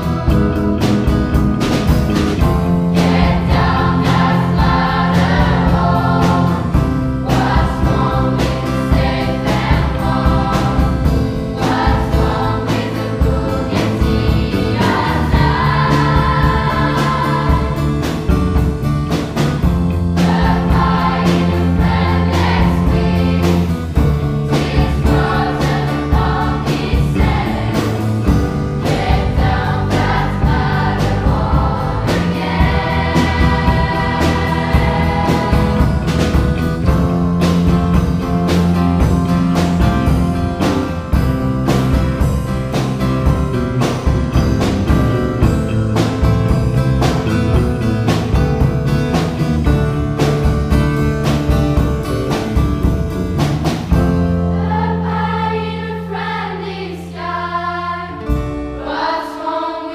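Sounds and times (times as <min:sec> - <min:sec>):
electric bass: 0:00.0 - 0:59.6
drum kit beat: 0:00.0 - 0:59.7
choir singing: 0:02.9 - 0:18.4, 0:20.1 - 0:37.0, 0:54.4 - 0:59.9.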